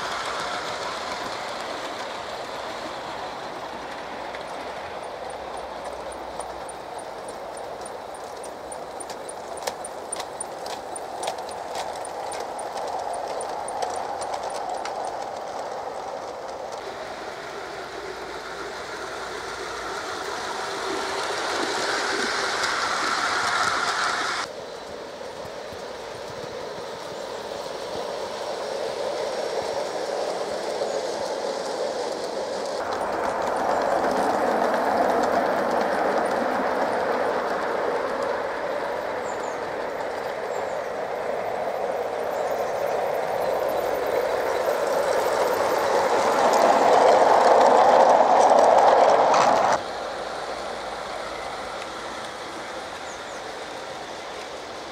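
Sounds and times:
small wheels rolling on rail: 0.0s - 54.9s.

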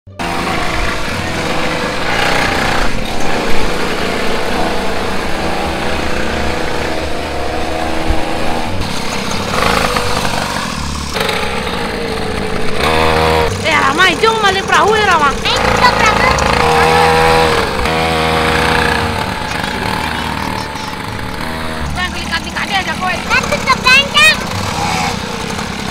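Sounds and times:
small engine running: 0.1s - 25.9s.

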